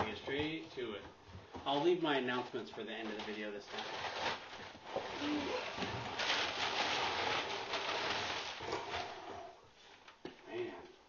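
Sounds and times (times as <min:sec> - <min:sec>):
packing paper crinkling: 0:02.8 - 0:09.2.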